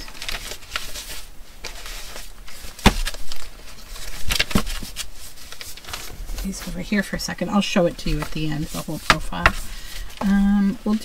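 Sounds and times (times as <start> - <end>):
paper pages rustling: 0.0 - 11.0
book knocking: 2.8 - 3.2.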